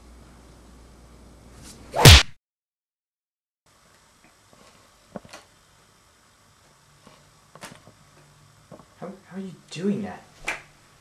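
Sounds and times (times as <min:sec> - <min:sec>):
loud short thump: 0:02.0 - 0:02.4.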